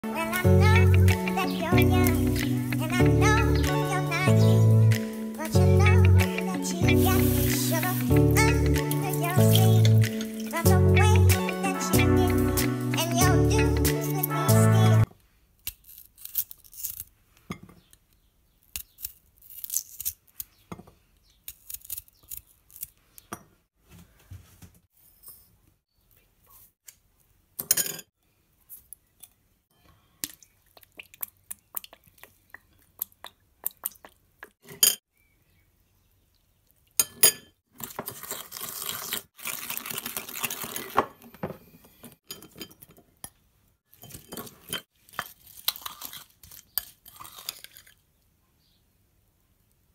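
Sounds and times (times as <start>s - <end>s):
spoon scraping ceramic bowl: 7.1s - 8.1s, 9.4s - 10.7s.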